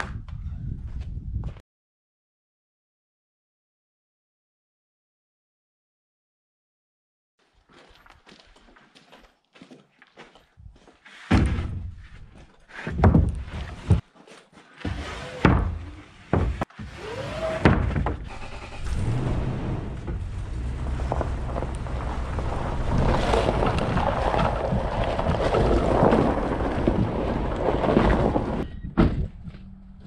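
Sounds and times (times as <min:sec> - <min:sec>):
wooden panels knocking: 0:12.9 - 0:14.0, 0:15.4 - 0:16.7
pickup truck driving rumble: 0:18.8 - 0:28.6.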